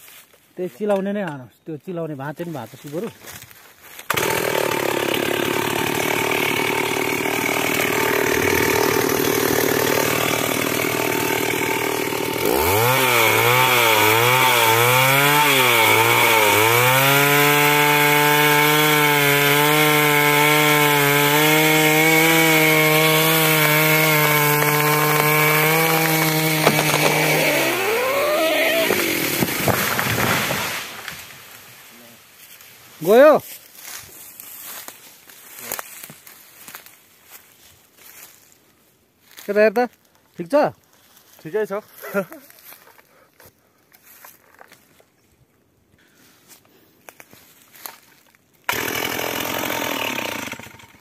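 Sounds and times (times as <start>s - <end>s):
chainsaw cutting tree trunk: 4.0s - 31.7s, 48.6s - 51.0s.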